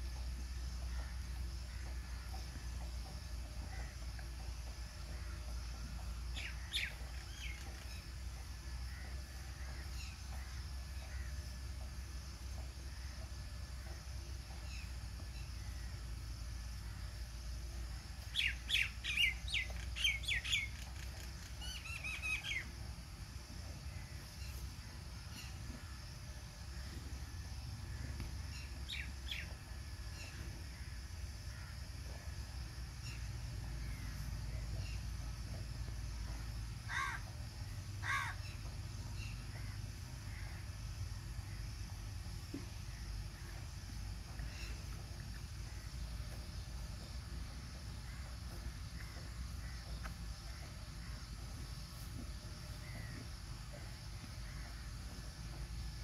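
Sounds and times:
low steady rumble: 0.0s - 56.0s
bird calling: 18.3s - 22.7s, 36.9s - 37.3s, 38.0s - 40.5s
crow cawing: 36.9s - 37.2s, 38.0s - 38.4s.

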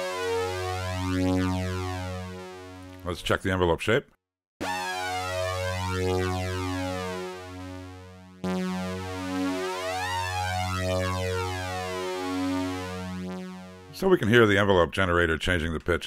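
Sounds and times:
synthesizer low sawtooth note: 0.0s - 3.0s, 4.6s - 14.3s.

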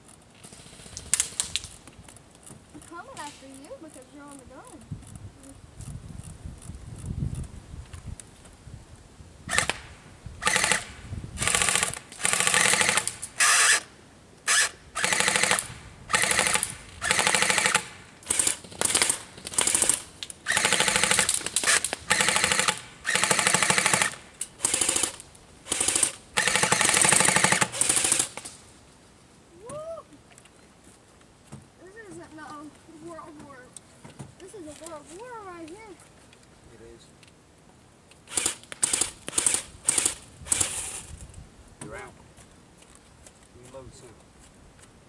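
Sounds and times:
airsoft gun firing bursts: 9.5s - 13.8s, 14.5s - 28.4s, 38.3s - 40.8s.

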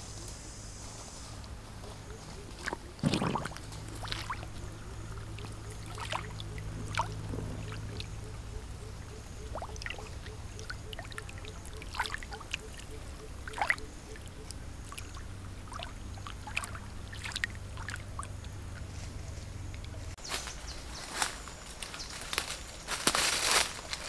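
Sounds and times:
steady low hum: 0.0s - 23.0s
fish splashing in water: 2.4s - 18.9s.

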